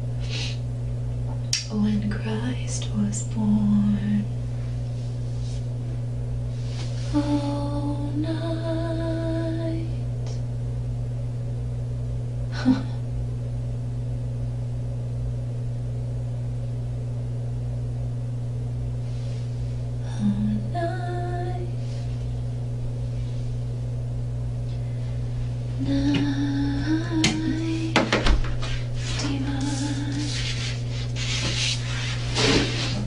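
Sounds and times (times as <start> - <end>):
steady low hum: 0.0 - 33.0
woman singing long notes: 7.1 - 10.0, 20.0 - 21.8, 25.8 - 28.0, 29.2 - 30.4.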